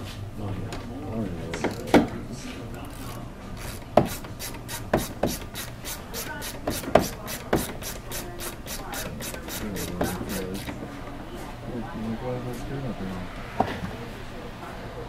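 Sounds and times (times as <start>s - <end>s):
hand tool scraping strokes: 3.7s - 10.7s.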